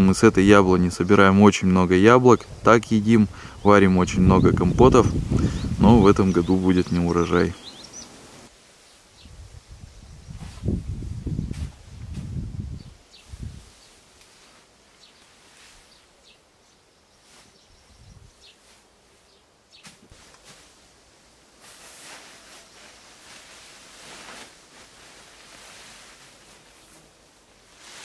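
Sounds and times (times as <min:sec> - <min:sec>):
grass rustling swishes: 0:04.9 - 0:28.0
faint bird chirps: 0:05.4 - 0:08.2.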